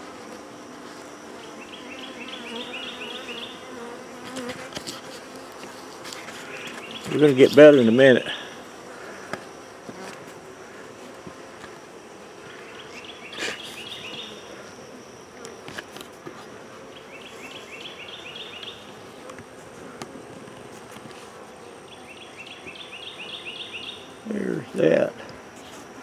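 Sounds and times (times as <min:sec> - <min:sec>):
honey bees buzzing: 0:00.0 - 0:26.0.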